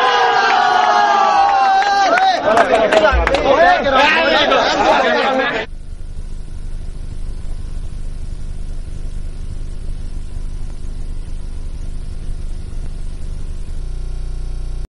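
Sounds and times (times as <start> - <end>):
steady low rumble: 3.0 - 4.8.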